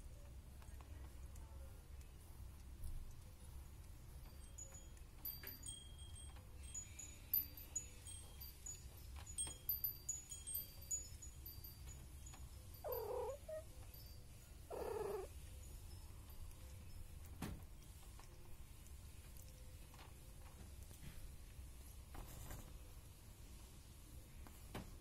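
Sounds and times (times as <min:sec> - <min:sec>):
faint high chime-like tones: 0:02.9 - 0:19.8
cat meowing: 0:12.8 - 0:13.7, 0:14.7 - 0:15.3.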